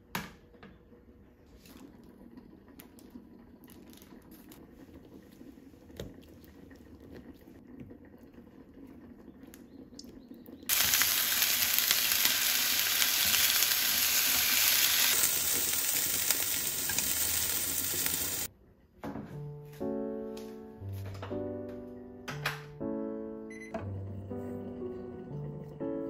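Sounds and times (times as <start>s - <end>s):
chicken sizzling in a frying pan: 10.7s - 18.5s.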